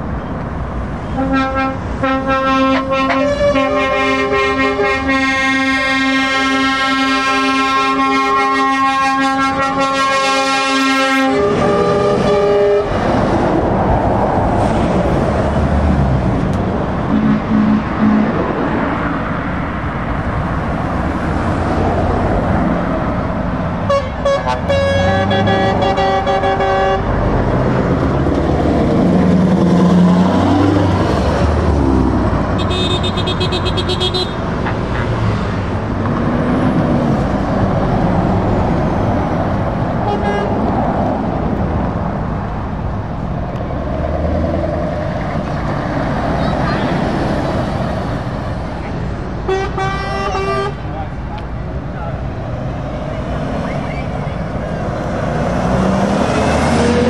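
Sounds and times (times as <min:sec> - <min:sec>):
trucks driving past: 0:00.0 - 0:57.0
truck air horns: 0:01.1 - 0:13.1, 0:17.1 - 0:18.5, 0:23.8 - 0:27.2, 0:32.6 - 0:35.2, 0:40.0 - 0:40.6, 0:49.4 - 0:50.9.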